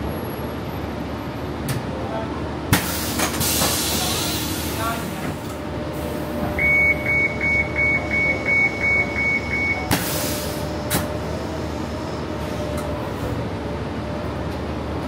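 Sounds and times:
vehicle running noise: 0.0s - 15.0s
vehicle warning beeper: 6.5s - 9.9s.

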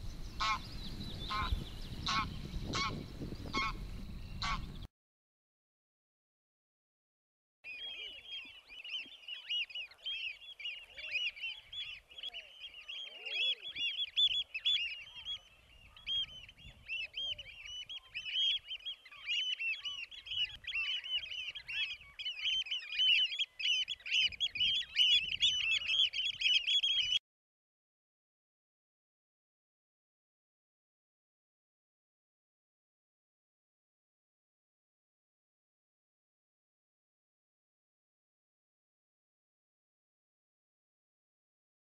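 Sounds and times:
flock of birds calling: 0.3s - 4.9s, 7.7s - 27.2s.

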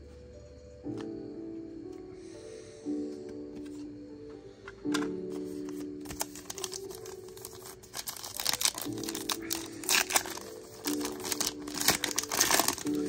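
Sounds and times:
soft piano music: 0.0s - 13.0s
wrapper crinkling and tearing: 6.0s - 13.0s.

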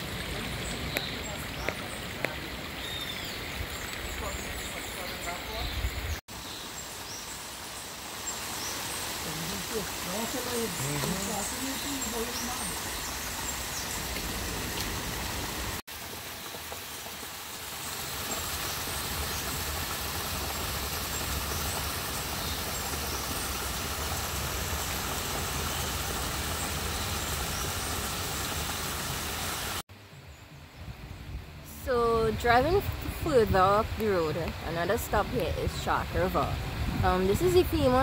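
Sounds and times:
waterfall splashing into rock pool: 7.0s - 29.8s.

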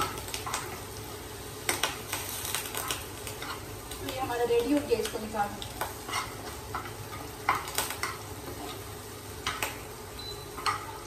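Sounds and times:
chicken sizzling in oil: 0.0s - 11.0s
metal spoon scraping pan: 6.0s - 8.8s.

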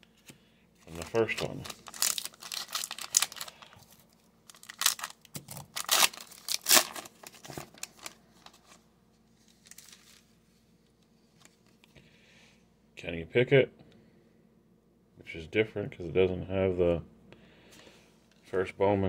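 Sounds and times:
foil wrapper tearing: 1.0s - 3.9s, 4.5s - 8.8s, 9.5s - 10.2s.

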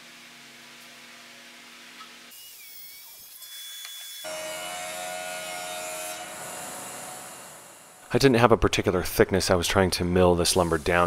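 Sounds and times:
machine hum: 4.3s - 8.2s.

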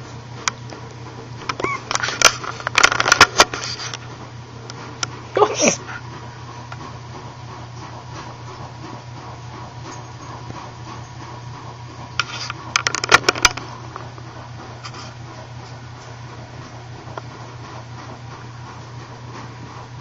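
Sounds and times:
steady low hum: 0.0s - 20.0s
puppies scratching: 1.4s - 13.4s.

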